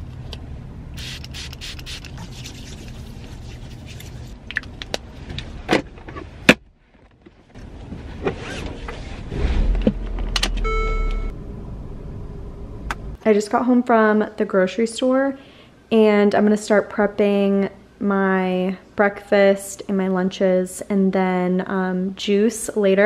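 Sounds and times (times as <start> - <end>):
low hum: 0.0 - 14.2
low rumble: 8.9 - 13.2
electronic car chime: 10.6 - 11.3.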